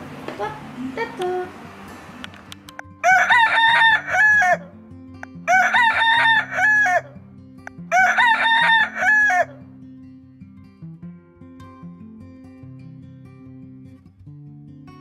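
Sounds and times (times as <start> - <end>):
low background music: 0.6 - 9.6
rooster crowing: 3.0 - 4.8, 5.4 - 7.2, 7.9 - 9.6.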